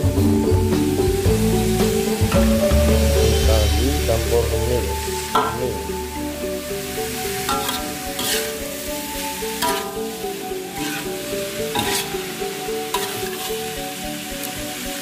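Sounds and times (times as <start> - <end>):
tofu sizzling in hot oil: 0.0 - 3.8, 4.6 - 15.0
melodic background music: 0.0 - 15.0
metal spatula scraping a pan: 7.4 - 8.8, 9.5 - 13.8.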